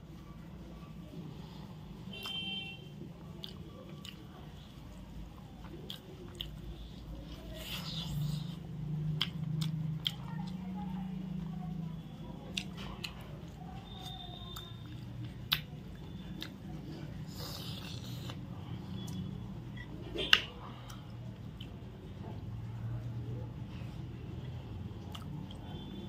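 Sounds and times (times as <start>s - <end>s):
chewing with wet mouth clicks: 2.1s - 2.4s, 3.2s - 21.9s, 24.4s - 26.0s.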